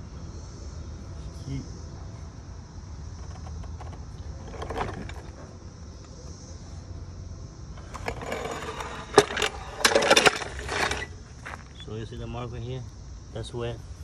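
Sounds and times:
floor jack metal clanking: 7.9 - 11.6.

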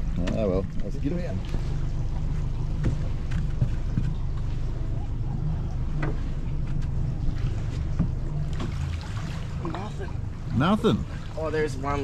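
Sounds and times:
light knocks on aluminium boat: 2.7 - 4.5, 5.9 - 7.0.

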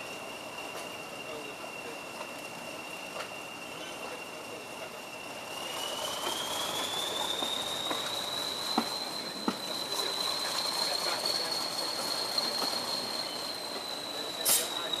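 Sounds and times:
diesel locomotive engine: 0.0 - 15.0
train running noise: 0.0 - 15.0
turbocharger whistle: 5.3 - 15.0.

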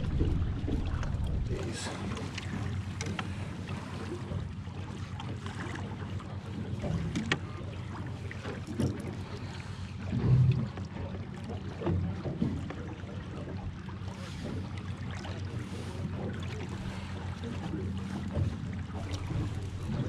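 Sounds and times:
low thump: 0.0 - 1.7
wind rumble on microphone: 0.0 - 3.4, 18.2 - 20.0.

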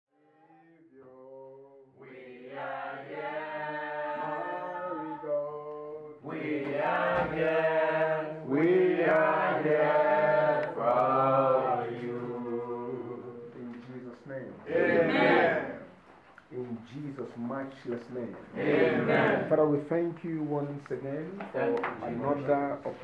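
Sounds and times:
voices singing long held notes: 0.5 - 13.8.

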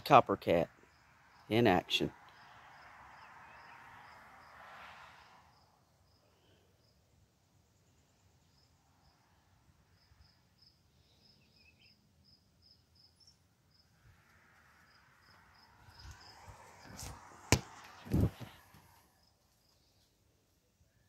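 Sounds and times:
faint insect chirping: 0.7 - 16.9, 18.8 - 21.0
dull thuds: 17.5 - 18.5.

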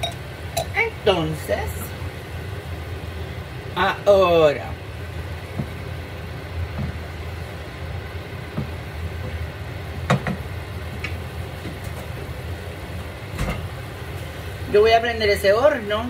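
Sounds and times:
sauce bubbling in skillet: 4.8 - 14.8
wooden spoon knocking pan: 10.1 - 10.5.

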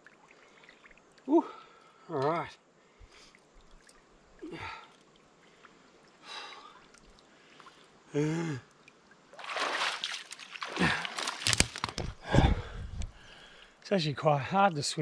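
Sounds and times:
water splashing and sloshing: 0.0 - 13.8
man breathing heavily: 12.2 - 13.8.

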